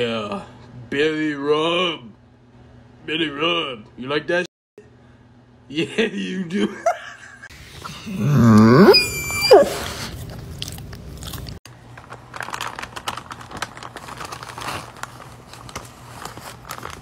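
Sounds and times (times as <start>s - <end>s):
dog howling cry: 8.0s - 10.0s
paper bag crinkling: 10.1s - 17.0s.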